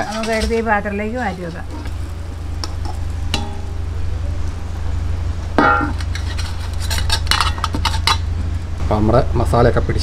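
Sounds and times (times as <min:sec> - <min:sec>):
metal utensils scraping a pan: 0:00.0 - 0:03.7, 0:05.6 - 0:08.3
steady low hum: 0:00.0 - 0:10.0
loud metal clank: 0:03.2 - 0:03.9, 0:05.6 - 0:08.3.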